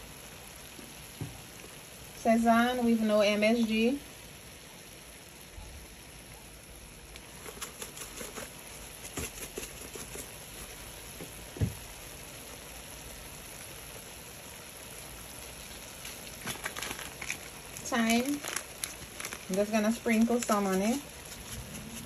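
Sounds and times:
chicken sizzling in a pot: 0.0 - 22.0
seasoning ticks and rattles: 7.0 - 22.0
knock: 11.2 - 11.8.

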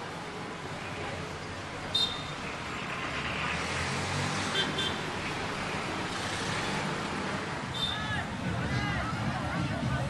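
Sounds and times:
street traffic noise: 0.0 - 10.0
motor vehicle passing: 2.2 - 10.0.

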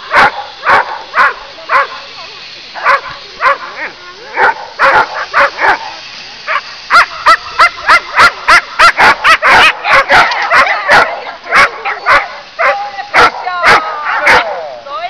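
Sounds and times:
dog barking and yelping: 4.3 - 5.8, 6.5 - 14.7.

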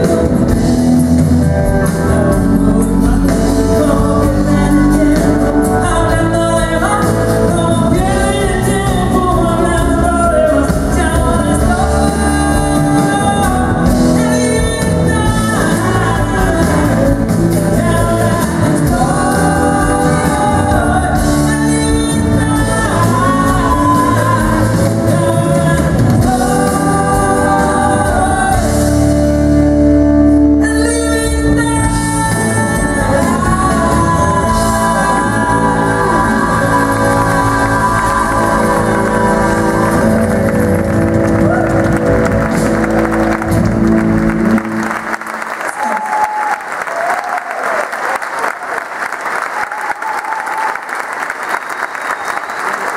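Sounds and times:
band with keyboards: 0.0 - 46.3
woman singing into microphone: 2.2 - 29.3, 30.6 - 40.7.

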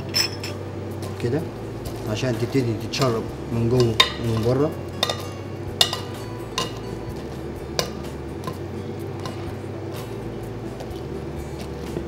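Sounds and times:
wire skimmer clinking on bowl: 0.0 - 0.6, 2.4 - 7.0.

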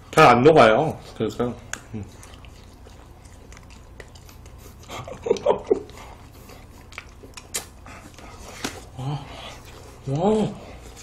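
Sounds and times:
biting and chewing ice cream: 0.0 - 11.0
mouth clicks and smacks: 1.6 - 8.9.

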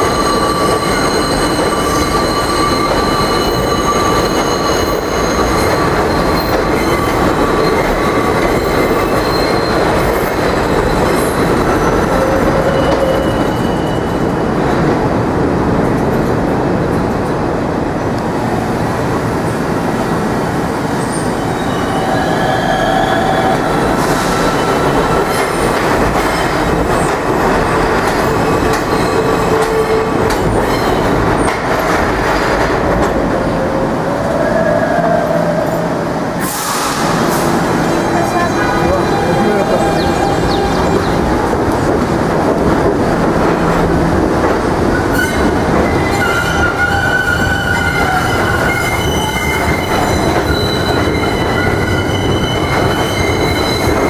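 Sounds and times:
steel wheels squealing: 0.0 - 14.3, 27.7 - 31.2, 37.8 - 41.3, 44.9 - 54.0
train cars rumbling: 0.0 - 54.0.

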